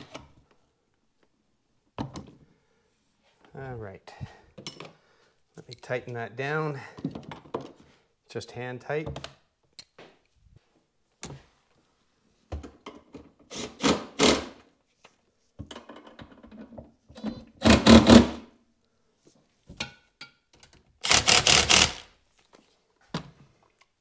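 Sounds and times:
cordless driver whirring: 0:21.0 - 0:22.1.

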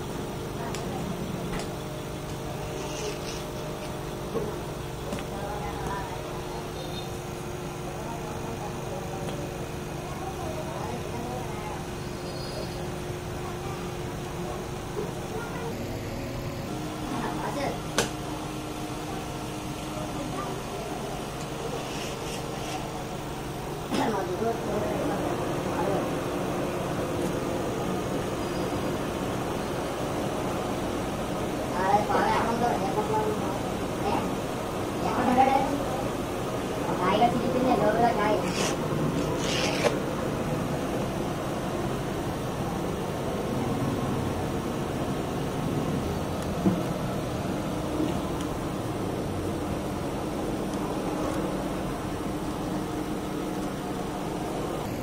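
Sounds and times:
machine hum: 0:00.0 - 0:55.0
knife scraping through pastry: 0:02.7 - 0:03.5, 0:21.7 - 0:22.9, 0:38.4 - 0:40.0.

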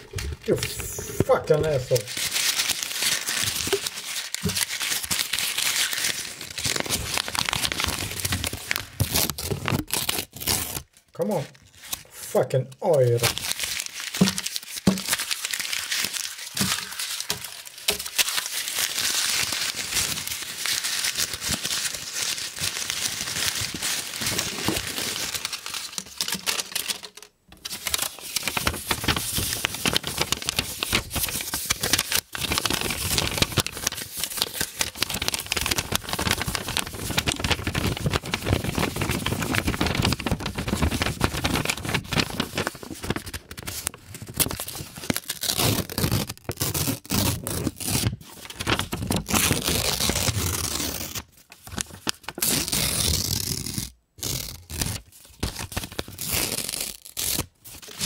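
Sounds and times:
banknotes crinkling: 0:00.0 - 0:53.5, 0:54.2 - 0:58.0.

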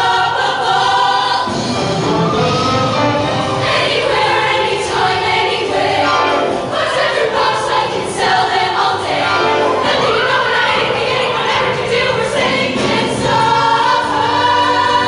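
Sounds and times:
choir singing with accompaniment: 0:00.0 - 0:15.0.

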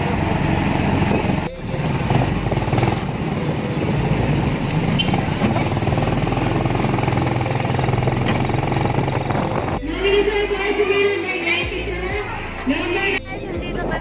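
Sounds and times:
motorcycle engine running: 0:00.0 - 0:09.8
road noise: 0:00.0 - 0:14.0.

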